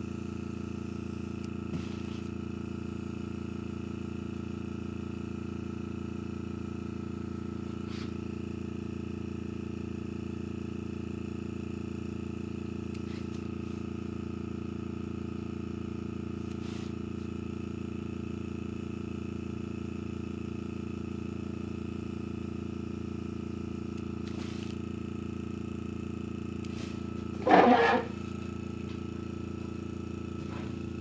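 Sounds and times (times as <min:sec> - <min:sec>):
air compressor humming: 0:00.0 - 0:31.0
airbrush hissing: 0:07.6 - 0:08.2, 0:16.4 - 0:17.3, 0:22.7 - 0:24.8, 0:26.6 - 0:28.2.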